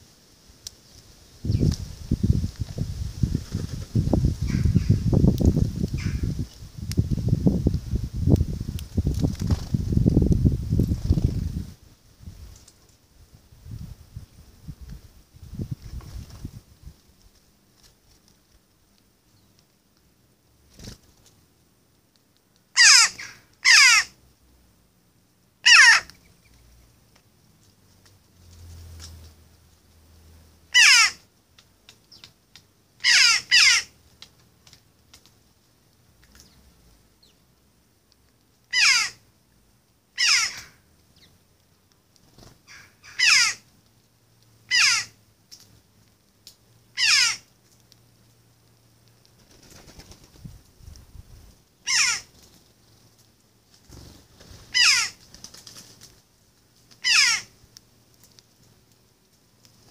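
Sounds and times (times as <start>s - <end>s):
jackdaw calling: 4.4s - 5.0s, 5.9s - 6.4s, 22.7s - 24.2s, 25.6s - 26.2s, 30.7s - 31.2s, 33.0s - 34.0s, 38.7s - 39.2s, 40.2s - 41.3s, 42.4s - 43.7s, 44.7s - 45.2s, 46.9s - 47.5s, 51.8s - 52.4s, 54.6s - 55.2s, 57.0s - 57.6s.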